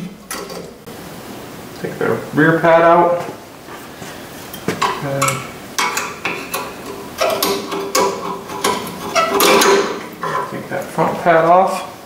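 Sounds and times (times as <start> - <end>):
metal clinks and scraping: 4.6 - 10.6
sharp metal clicks: 4.8 - 10.2.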